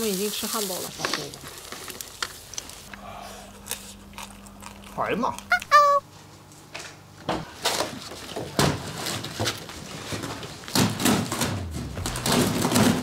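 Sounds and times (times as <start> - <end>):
knocks of things being handled: 9.4 - 13.0.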